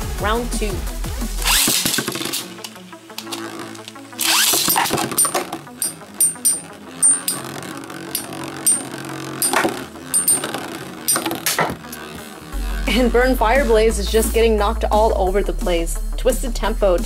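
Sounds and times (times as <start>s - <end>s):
background music: 0.0s - 17.0s
metal tops clashing: 4.4s - 7.4s, 9.4s - 11.8s.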